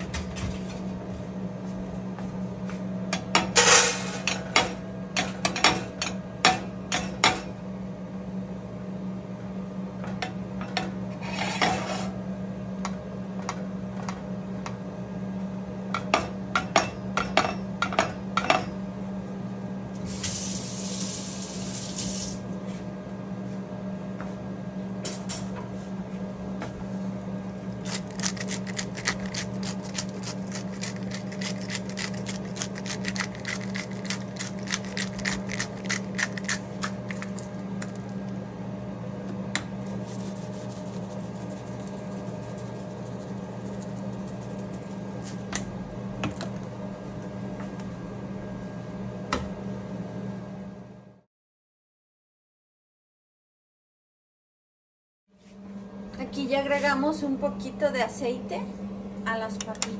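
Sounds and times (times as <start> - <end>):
steady low hum: 0.0 - 51.2.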